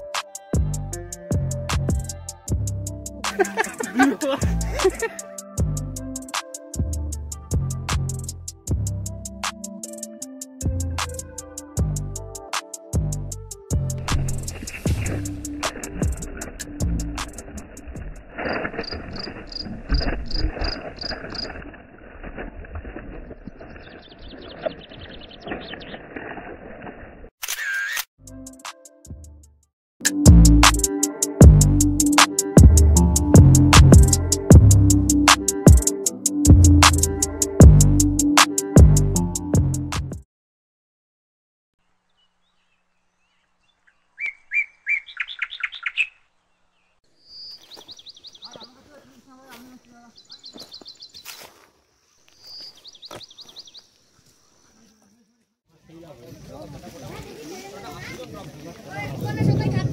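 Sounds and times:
low thumps: 13.8 - 18.2
insects chirping: 17.4 - 21.7, 47.2 - 58.0
bird singing sharp notes: 43.8 - 46.2.

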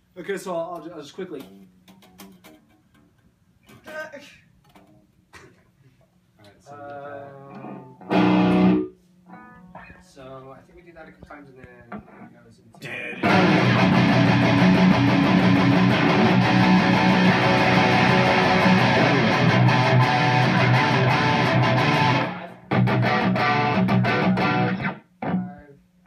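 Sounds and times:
electric guitars playing metal riff: 8.0 - 8.9, 13.2 - 25.6.

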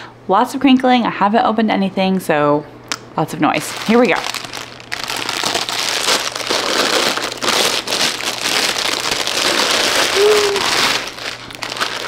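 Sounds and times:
packaging crinkling: 3.5 - 12.0.

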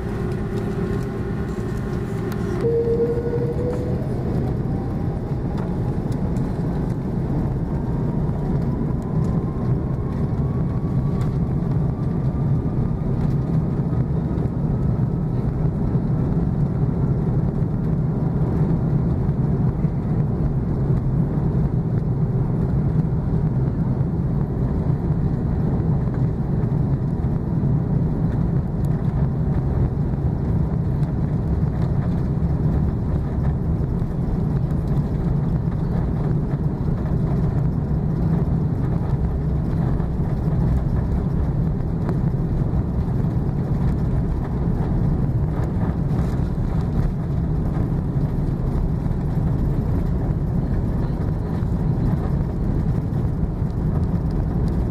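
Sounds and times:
jet engine whine rising: 0.0 - 14.2
deep jet engine rumble: 0.0 - 54.9.

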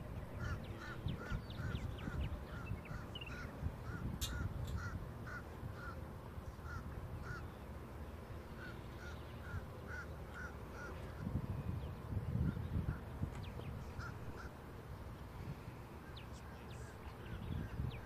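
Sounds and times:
bird calling: 0.3 - 7.6, 8.5 - 11.3, 12.5 - 14.6.

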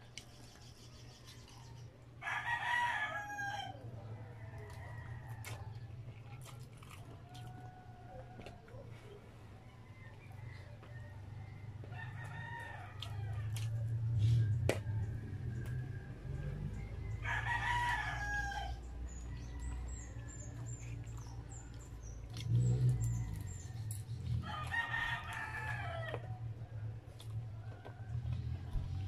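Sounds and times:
close-up eating: 0.0 - 29.0
rooster crowing: 2.2 - 3.8, 14.7 - 20.4, 22.9 - 26.4.

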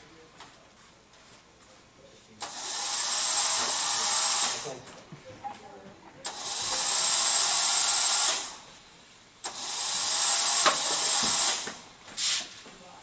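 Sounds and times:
electric motors whining: 2.4 - 4.9, 6.3 - 8.8, 9.4 - 11.9.

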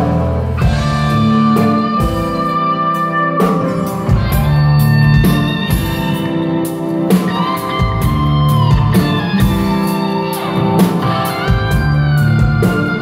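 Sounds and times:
bass line: 0.0 - 13.0
drums: 0.0 - 13.0
electric guitar bending notes: 0.0 - 13.0.

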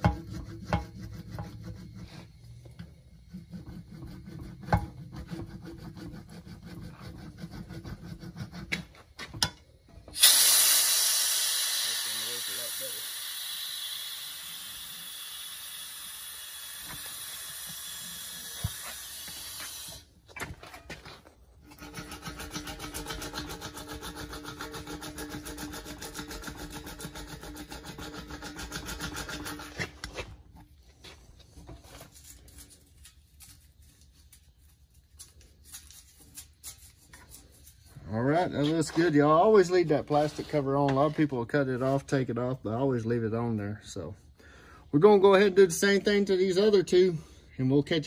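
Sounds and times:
steady hiss: 10.1 - 20.2.

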